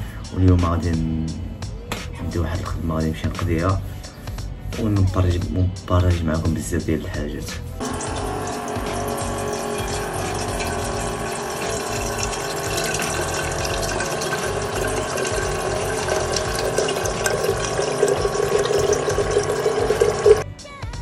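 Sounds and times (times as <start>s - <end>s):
tap water filling a vessel: 7.8s - 20.4s.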